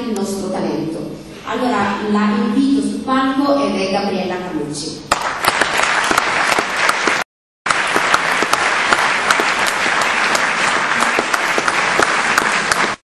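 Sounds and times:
audience applauding: 5.1 - 13.0.

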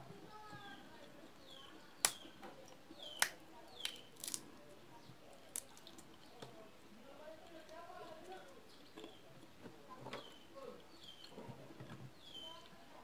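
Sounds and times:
peanut shells cracking: 2.0 - 2.4, 3.0 - 4.6, 5.3 - 6.4.

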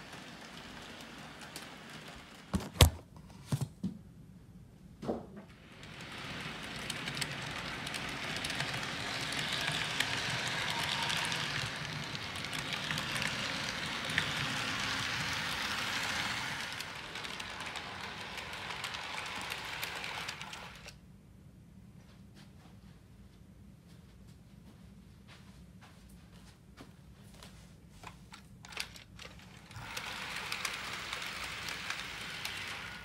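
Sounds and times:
model train whirring rattle: 0.0 - 2.6, 5.5 - 21.0, 28.6 - 33.0.

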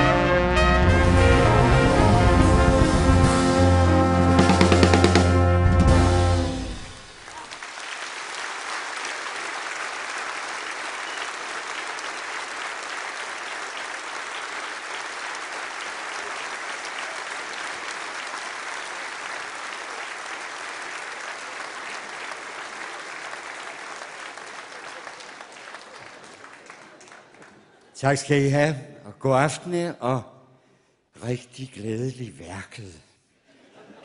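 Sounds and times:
brass chord: 0.0 - 7.2
audience applauding: 6.6 - 28.0.

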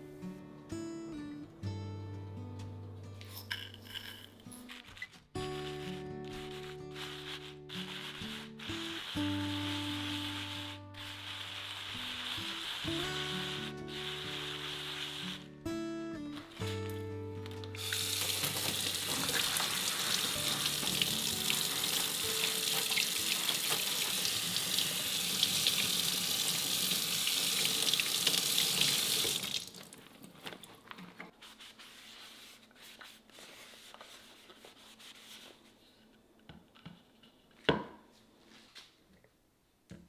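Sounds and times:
faucet water splashing on board: 17.8 - 30.0.

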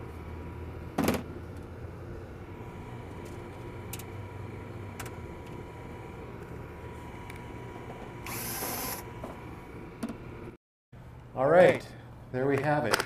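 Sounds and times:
steady low hum: 0.0 - 12.4.

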